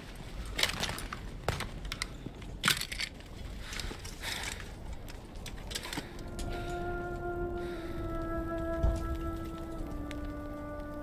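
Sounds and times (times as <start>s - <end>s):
low battlefield rumble: 0.0s - 11.0s.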